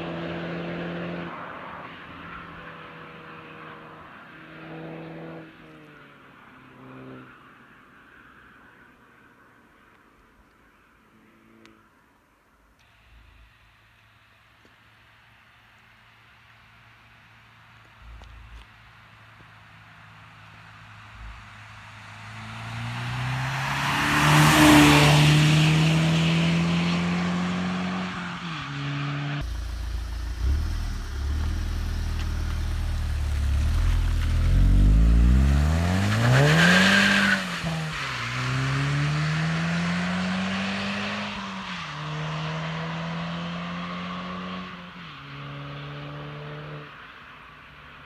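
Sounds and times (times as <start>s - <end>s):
car driving past: 20.7s - 47.1s
car accelerating through gear shifts: 22.2s - 44.8s.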